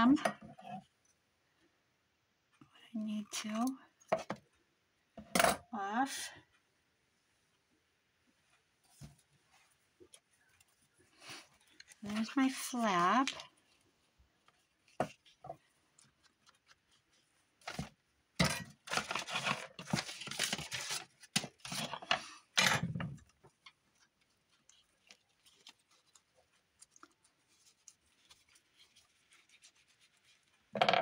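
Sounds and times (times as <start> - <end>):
paper rustling: 8.8 - 18.1, 18.7 - 22.3, 23.2 - 30.7.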